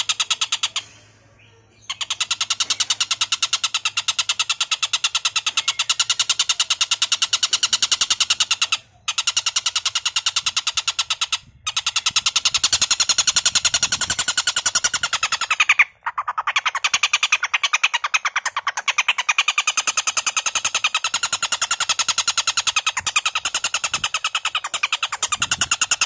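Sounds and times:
bird harsh rapid chattering call: 0.0 - 26.0.

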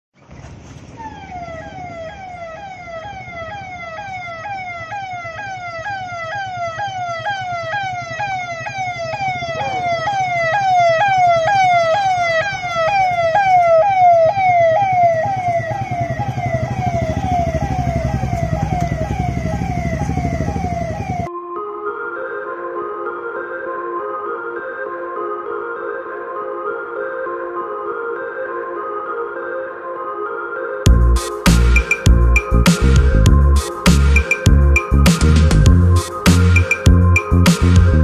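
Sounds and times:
passing vehicle engines rumbling: 0.2 - 21.3
vehicle siren: 0.8 - 38.0.

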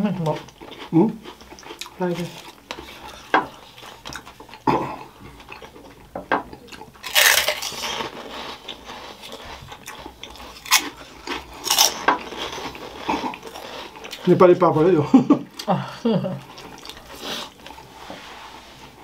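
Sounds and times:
chewing: 0.2 - 14.8, 16.4 - 18.0
crunching crispy snacks: 6.6 - 14.5.

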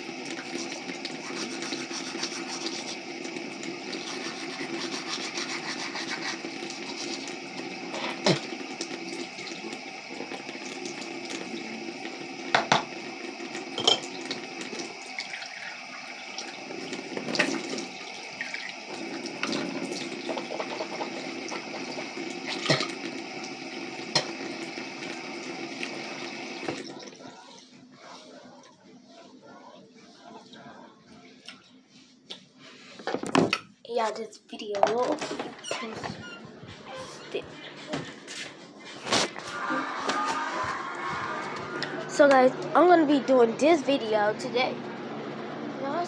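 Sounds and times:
sink tap running: 0.0 - 27.2
knocks and clatters at basin: 13.8 - 14.1.

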